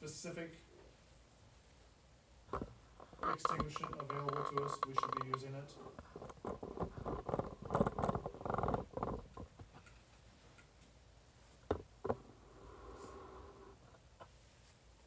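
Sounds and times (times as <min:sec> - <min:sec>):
sharp clicks: 0:02.5 - 0:05.5
phone handling rustling and scraping: 0:02.5 - 0:10.0.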